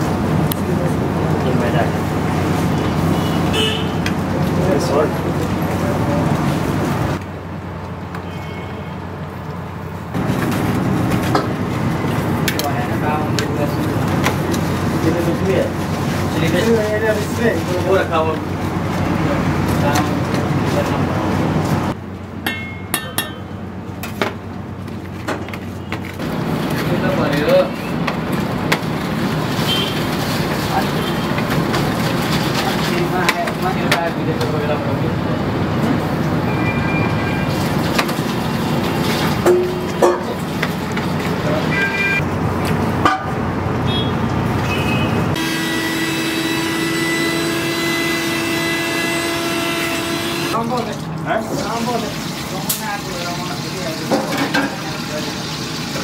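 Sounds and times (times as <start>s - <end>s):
metal spoon clinking bowl: 22.5s - 23.5s.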